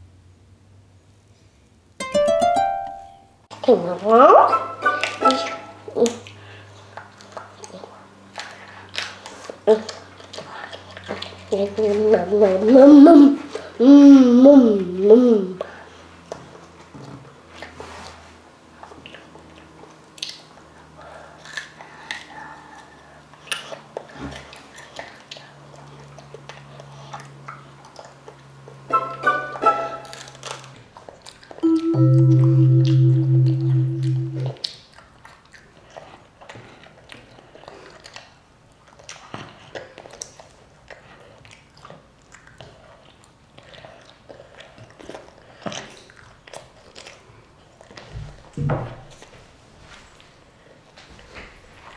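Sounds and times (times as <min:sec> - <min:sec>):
child chewing broccoli: 0:06.0 - 0:12.7, 0:18.8 - 0:28.8, 0:30.1 - 0:31.6, 0:34.6 - 0:48.5.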